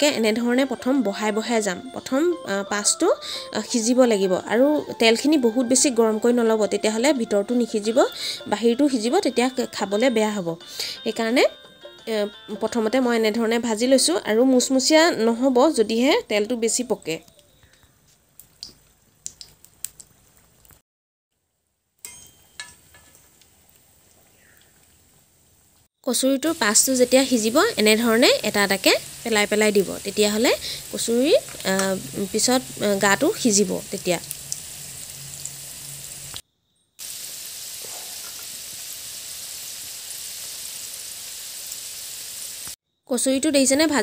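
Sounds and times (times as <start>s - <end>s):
deep-frying sizzle: 24.8s - 36.4s, 37.0s - 42.8s.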